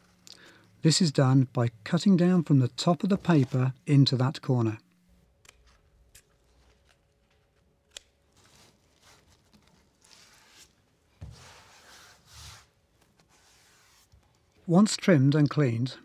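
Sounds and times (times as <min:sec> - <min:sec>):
scissors snipping paper: 0:05.4 - 0:10.5
sponge rubbing wallpaper: 0:08.4 - 0:14.2.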